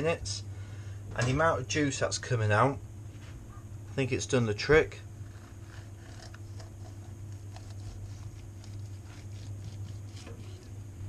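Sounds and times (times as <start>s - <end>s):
steady low hum: 0.0s - 11.0s
knife slicing crispy skin: 5.4s - 10.7s.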